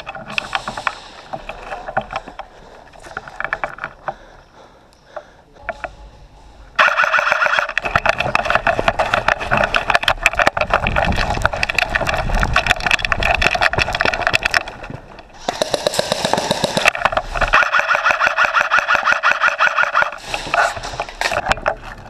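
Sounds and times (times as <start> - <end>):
airsoft rifle firing full-auto: 15.4 - 17.0.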